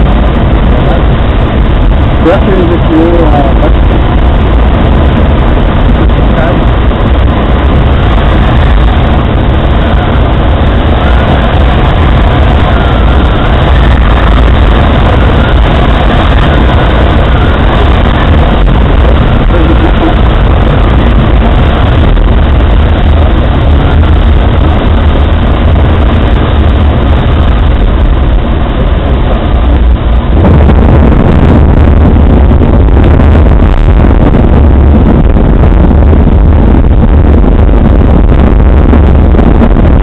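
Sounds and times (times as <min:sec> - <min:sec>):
low engine rumble: 0:00.0 - 0:40.0
wind on microphone: 0:00.0 - 0:40.0.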